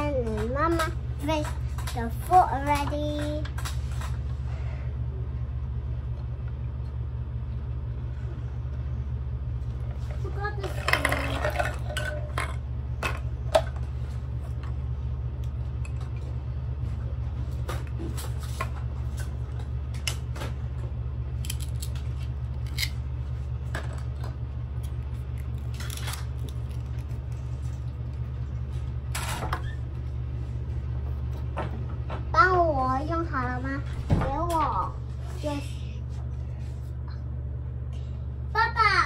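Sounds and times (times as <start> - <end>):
steady low hum: 0.0 - 39.0
toy dishes clinking: 10.6 - 13.2.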